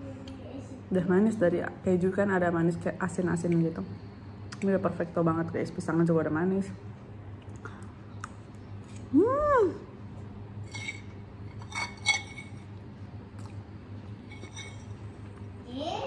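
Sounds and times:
fork clinking on ceramic plate: 10.7s - 12.7s.

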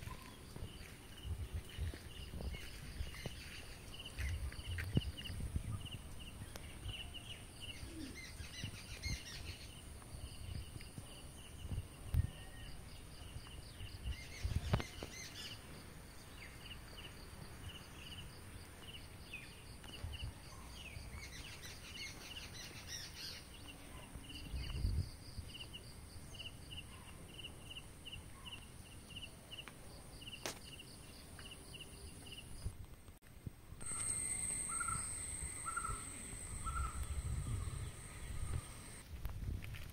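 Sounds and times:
bird chirping: 33.8s - 39.0s
steady high-pitched tone: 33.8s - 39.0s.

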